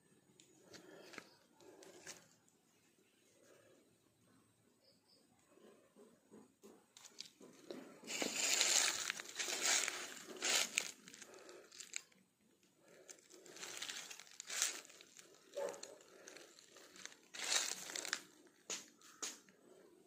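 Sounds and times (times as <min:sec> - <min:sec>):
footsteps crunching dry leaves: 0:07.0 - 0:12.1, 0:12.9 - 0:19.2.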